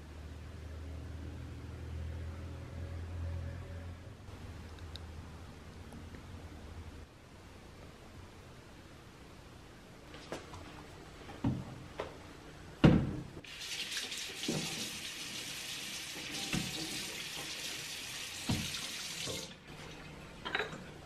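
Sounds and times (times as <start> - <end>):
tap running into metal sink: 14.4 - 14.9, 18.4 - 19.5.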